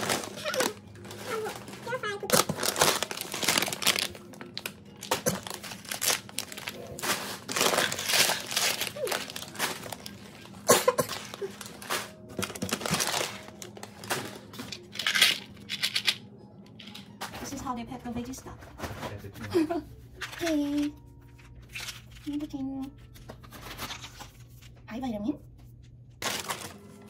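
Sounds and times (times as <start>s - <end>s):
plastic food pouches crinkling: 0.0s - 15.5s, 26.2s - 27.0s.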